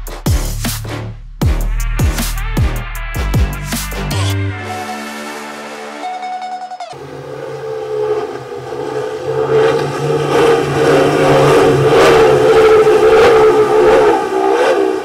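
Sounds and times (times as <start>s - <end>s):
outboard engines at high speed: 7.0s - 15.0s.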